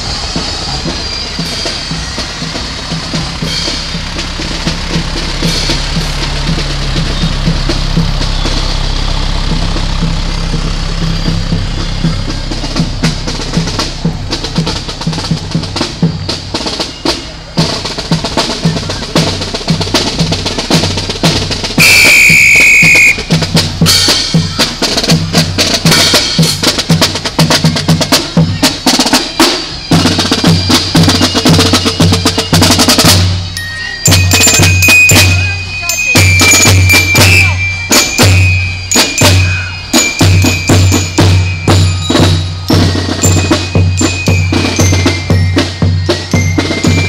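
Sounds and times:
fire truck engine rumbling: 0.0 - 47.0
marching drum line playing: 0.0 - 47.0
loud high whistle blast: 21.8 - 23.4, 34.9 - 40.7.

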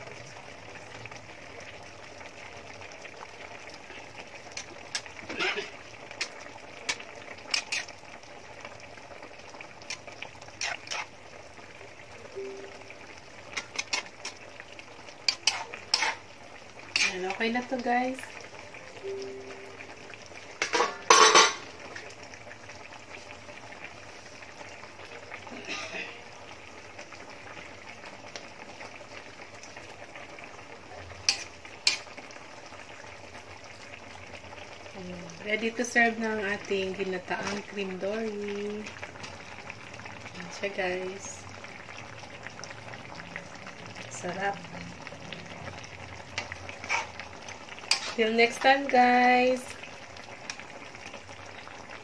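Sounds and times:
sauce simmering in a wok: 0.0 - 52.0
metal ladle scraping a pan: 4.6 - 6.3, 6.9 - 8.0, 9.8 - 11.2, 13.5 - 14.5, 15.2 - 17.4, 20.6 - 21.7, 31.2 - 32.1, 46.4 - 48.8.

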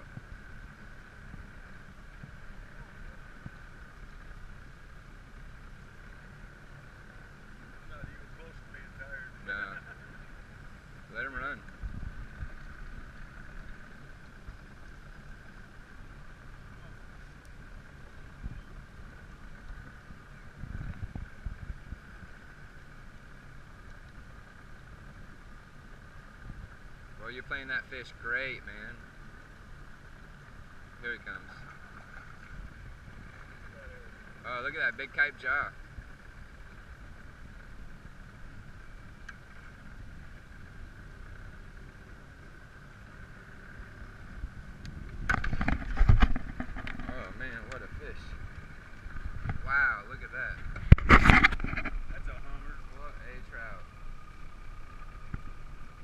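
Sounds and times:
wind rumble on microphone: 0.0 - 29.0, 35.4 - 56.0
boat motor humming: 0.0 - 56.0.

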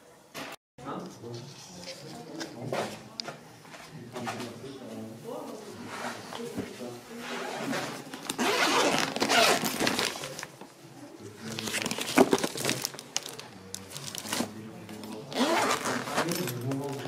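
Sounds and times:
nylon bag rustling: 8.4 - 10.4, 11.4 - 14.5, 15.3 - 17.0
plastic bags crinkling: 8.4 - 10.5, 11.4 - 14.6.

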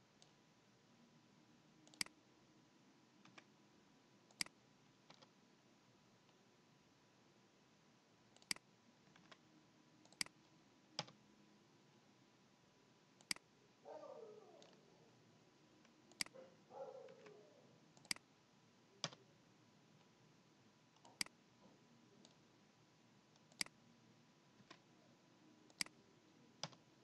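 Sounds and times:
computer mouse clicks: 1.8 - 2.2, 3.2 - 3.5, 4.3 - 5.3, 8.3 - 9.4, 10.0 - 11.2, 13.2 - 13.5, 14.6 - 14.8, 15.8 - 16.4, 17.1 - 17.4, 18.0 - 18.3, 19.0 - 19.2, 21.0 - 21.4, 22.2 - 22.4, 23.3 - 23.8, 25.7 - 26.0, 26.6 - 26.8.

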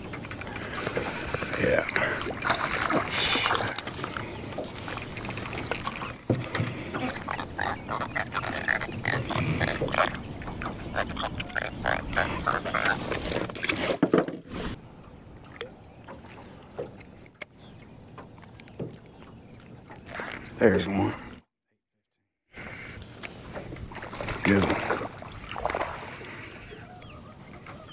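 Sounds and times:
fish splashing: 0.6 - 13.5, 23.9 - 26.6.

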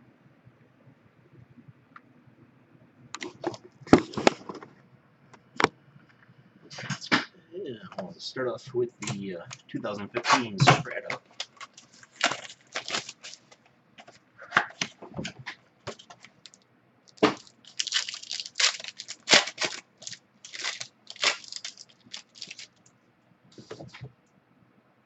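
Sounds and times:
foil wrapper tearing and crinkling: 11.2 - 13.6, 17.2 - 22.8.

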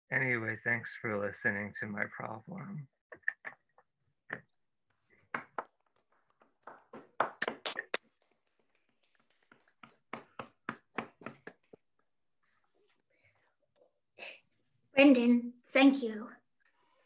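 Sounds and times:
hand clapping: 6.6 - 9.6.

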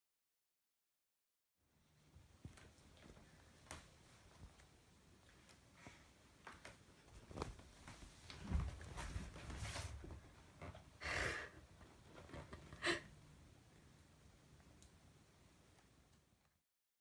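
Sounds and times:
fabric rustling: 5.3 - 10.6
soft thumps on blanket: 7.3 - 10.2.

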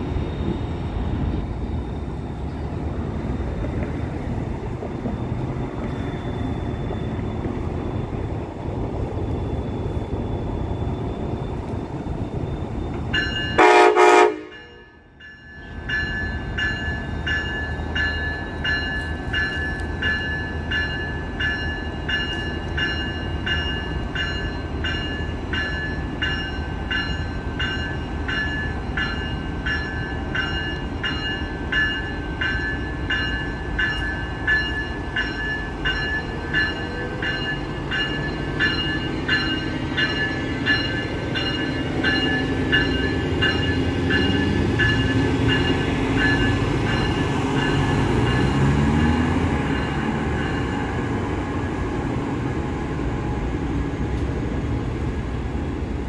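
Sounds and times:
diesel locomotive rumbling: 0.0 - 56.0
locomotive bell ringing: 11.9 - 52.2
locomotive horn blast: 13.6 - 14.9.

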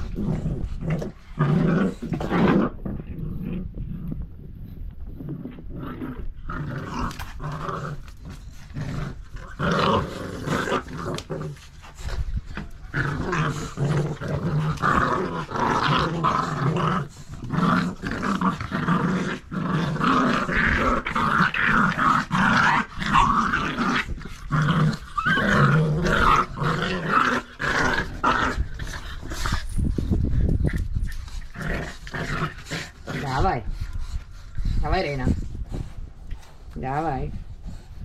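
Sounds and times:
dogs growling in play: 0.0 - 38.0.

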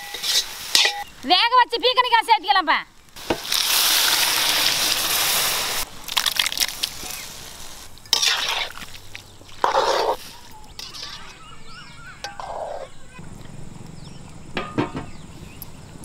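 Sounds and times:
pan being stirred: 0.0 - 1.1, 8.0 - 12.9
vegetables sizzling in hot pan: 0.0 - 1.6, 3.0 - 9.1.

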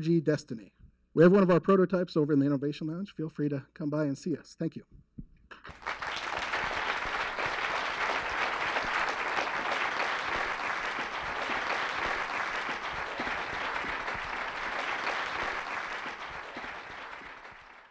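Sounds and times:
audience applauding: 5.5 - 17.9.

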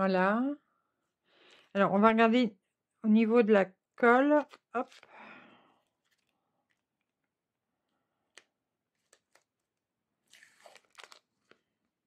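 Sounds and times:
plastic film crinkling: 4.4 - 5.2, 5.9 - 7.1, 10.2 - 11.7.

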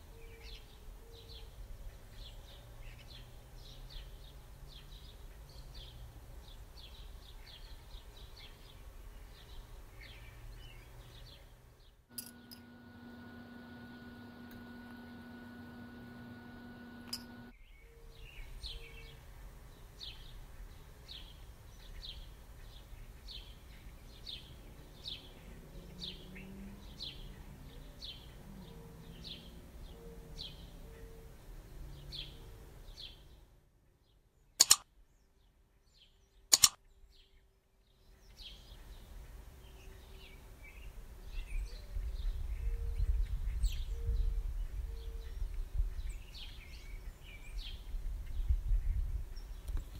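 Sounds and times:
sharp clicks: 12.1 - 17.5, 34.6 - 34.8, 36.5 - 36.8
small bird chirping: 34.6 - 34.8, 36.5 - 36.8.

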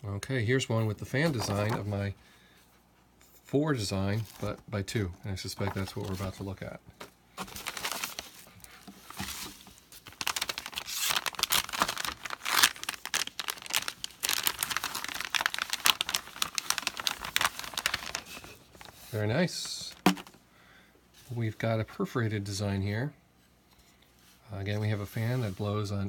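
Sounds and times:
plastic bag crinkling: 7.4 - 20.4.

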